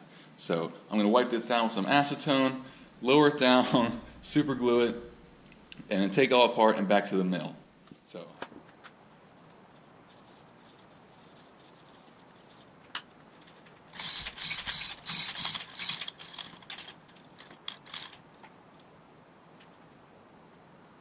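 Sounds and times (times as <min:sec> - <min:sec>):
chain hoist ratcheting clicks: 0:13.9 - 0:18.2.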